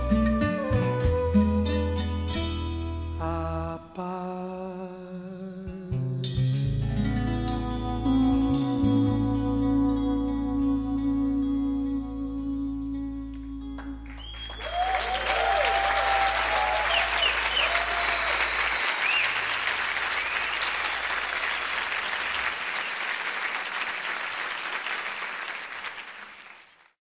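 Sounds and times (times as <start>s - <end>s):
audience applause: 14.1s - 27.0s
cheers and whistles: 14.2s - 23.1s.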